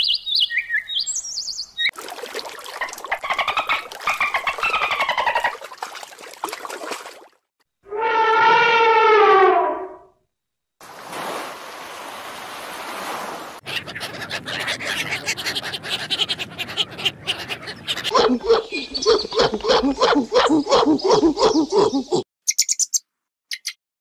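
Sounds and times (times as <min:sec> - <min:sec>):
elephant trumpeting: 0:07.9 - 0:09.9
surf washing on a beach: 0:10.8 - 0:13.6
ducks clicking chatter: 0:13.7 - 0:20.2.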